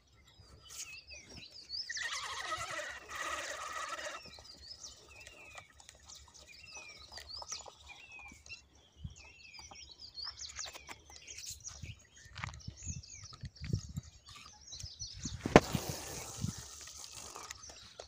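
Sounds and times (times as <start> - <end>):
birds chirping: 0.0 - 18.0
fishing reel whirring: 1.9 - 6.1, 15.8 - 18.0.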